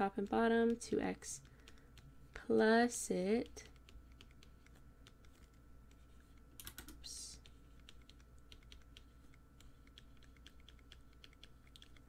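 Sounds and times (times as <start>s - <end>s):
stylus tapping on tablet screen: 3.4s - 12.0s.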